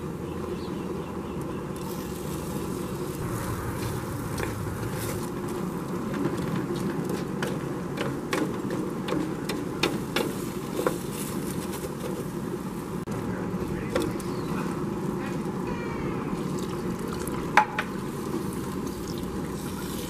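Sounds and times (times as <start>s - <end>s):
steady low hum: 2.8s - 7.1s.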